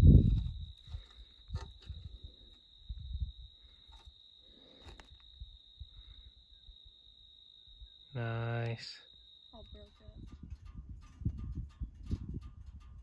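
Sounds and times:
crickets trilling: 0.0s - 13.0s.

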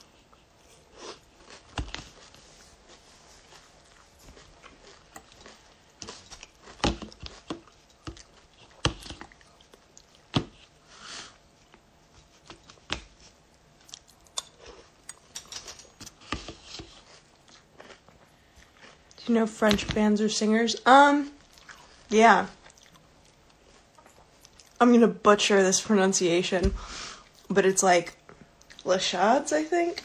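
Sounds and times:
chewing crunches: 0.2s - 10.6s, 11.7s - 19.3s, 21.4s - 24.8s.

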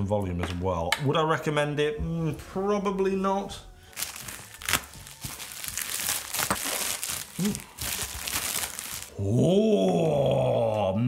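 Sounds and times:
plastic bag crinkling: 3.8s - 9.2s
plastic ripping: 3.9s - 9.2s.

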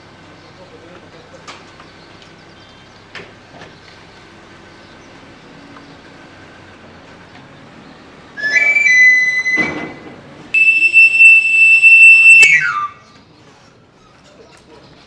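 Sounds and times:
plastic panpipe whistle: 8.4s - 10.0s, 10.6s - 13.2s.

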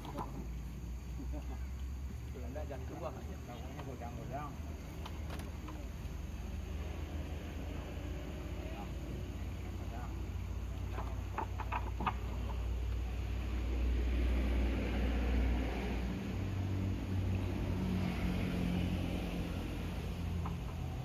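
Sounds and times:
low engine drone: 0.0s - 21.0s.

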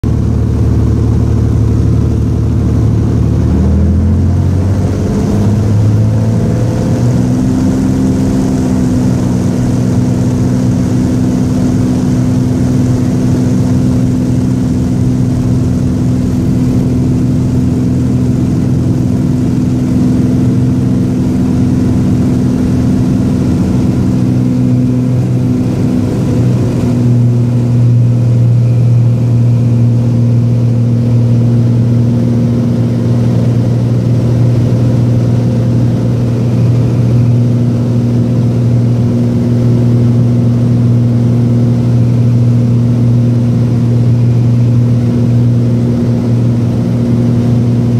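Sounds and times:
airplane engine and propeller drone: 0.0s - 47.9s.

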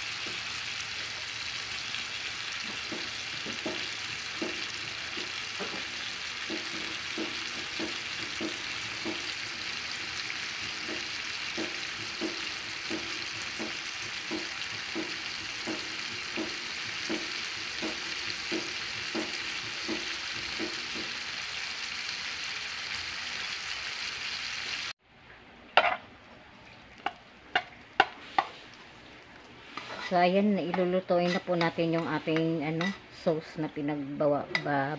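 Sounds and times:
meat sizzling in a pan: 0.0s - 25.0s
metal pan and lid clanking: 25.8s - 26.0s.

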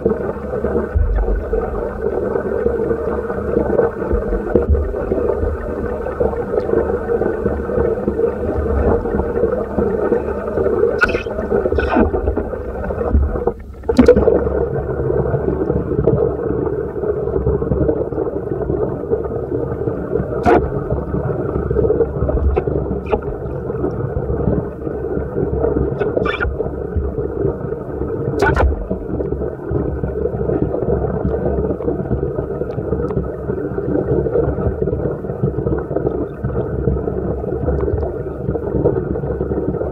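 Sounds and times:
underwater rumble and hiss: 0.0s - 39.9s.

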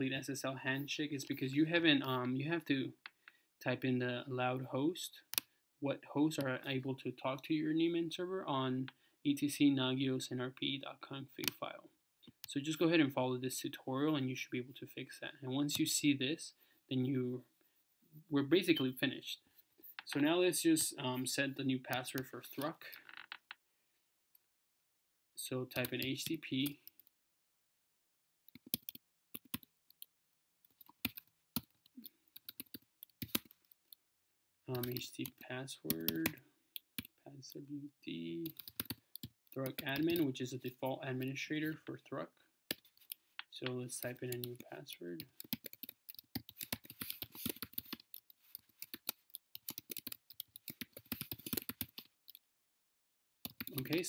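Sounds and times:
computer keyboard typing: 28.5s - 34.0s, 34.7s - 37.2s, 38.4s - 40.4s, 43.8s - 52.4s, 53.4s - 54.0s.

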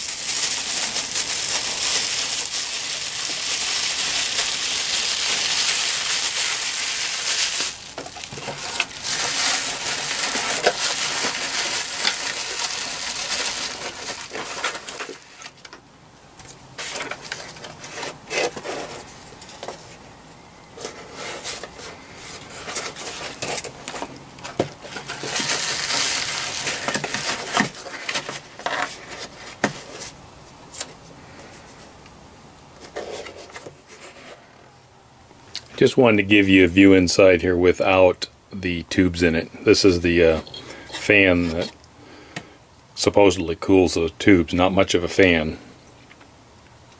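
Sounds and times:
aluminium foil crinkling: 0.0s - 15.8s, 16.4s - 20.0s, 20.8s - 31.9s.

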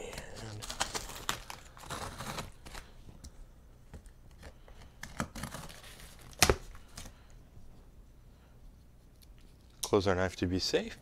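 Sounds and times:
tape and cardboard rustling: 0.0s - 3.3s, 3.9s - 7.1s
knife slitting packing tape: 0.6s - 2.8s, 5.0s - 6.6s.

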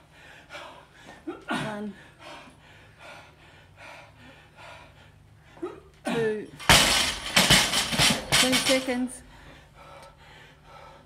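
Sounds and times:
man panting hard: 0.0s - 5.9s, 9.2s - 11.0s
barbell crashing onto rubber floor: 6.6s - 9.1s
barbell plates rattling: 6.6s - 9.2s.

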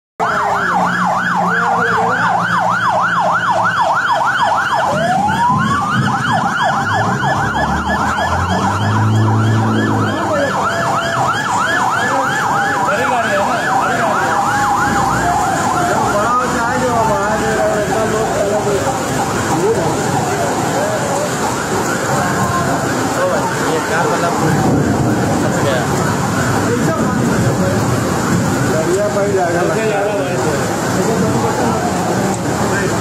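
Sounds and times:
emergency siren fast yelp: 0.2s - 33.0s
heavy rain and floodwater hiss: 0.2s - 33.0s
siren slow wail: 0.2s - 33.0s.

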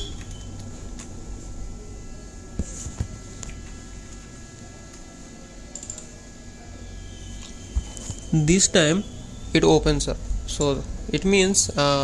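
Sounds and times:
computer mouse clicking: 5.7s - 6.1s.

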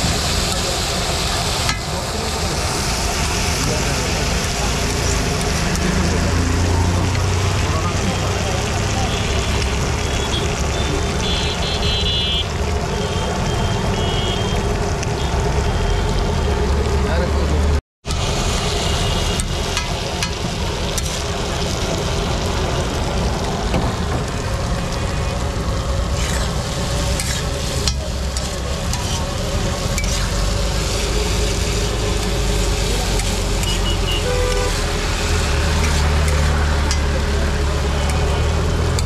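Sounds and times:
food sizzling on griddle: 0.0s - 17.3s, 18.0s - 39.0s
metal spatula scraping iron: 26.2s - 30.4s.

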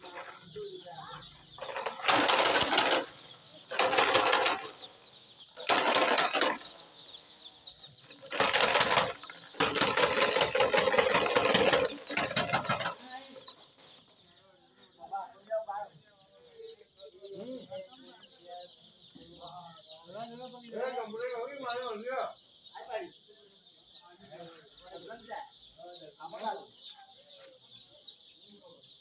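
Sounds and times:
chicks peeping: 0.0s - 29.0s
harsh rustling bursts: 1.6s - 4.8s, 5.6s - 6.7s, 8.2s - 13.5s.

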